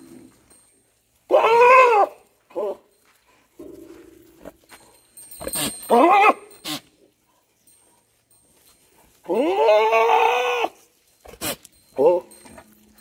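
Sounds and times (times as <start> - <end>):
goat bleating: 9.3 - 12.4.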